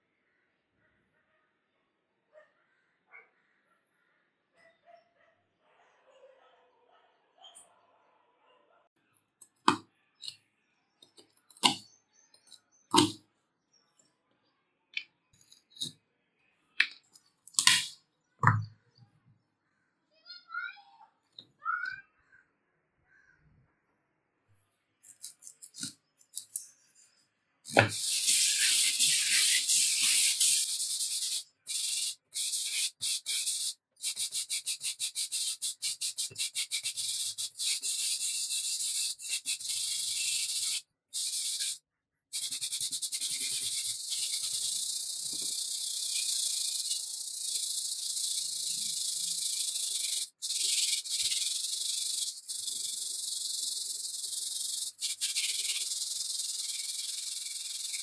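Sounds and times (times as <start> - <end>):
sandpaper scrubbing metal: 27.7 - 41.8, 42.4 - 52.7.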